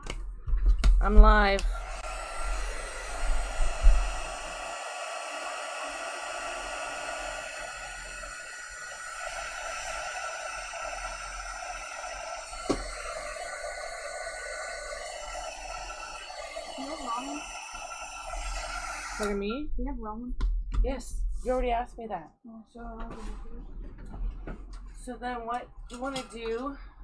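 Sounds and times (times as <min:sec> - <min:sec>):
heat tool blowing: 0:01.4 - 0:19.6
heat tool knock: 0:12.5 - 0:13.3.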